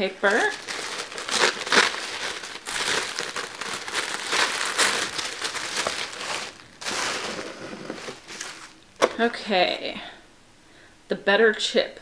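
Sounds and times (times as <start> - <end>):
tissue paper rustling: 0.0 - 8.8.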